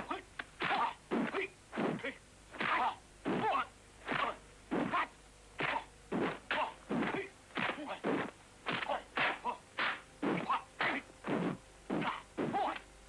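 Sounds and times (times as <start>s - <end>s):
fighters shouting and grunting: 2.6s - 5.9s.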